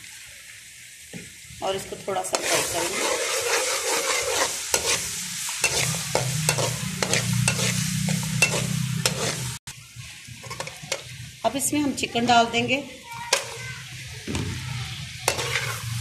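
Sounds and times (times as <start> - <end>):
onions sizzling in hot oil: 0.0 - 16.0
metal spoon scraping a pan: 2.1 - 9.6, 10.4 - 11.1, 13.3 - 13.7, 15.2 - 16.0.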